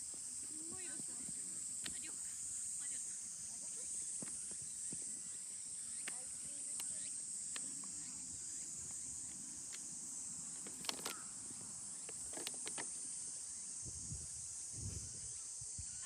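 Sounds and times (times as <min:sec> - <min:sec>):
high-pitched insect chorus: 0:00.0 - 0:16.0
sharp clicks: 0:10.6 - 0:11.2.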